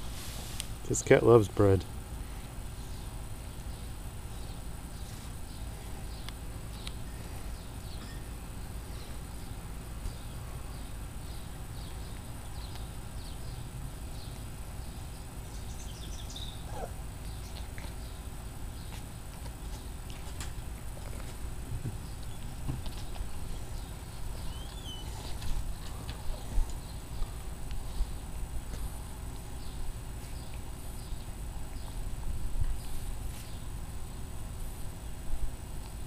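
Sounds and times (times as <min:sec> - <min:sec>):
low background noise: 0:00.0 - 0:36.0
cat chewing bread: 0:17.0 - 0:27.9.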